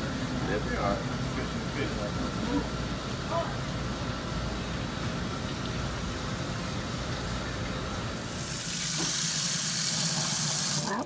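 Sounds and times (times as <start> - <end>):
machinery rumble and hiss: 0.0 - 10.8
tap water running: 5.0 - 11.0.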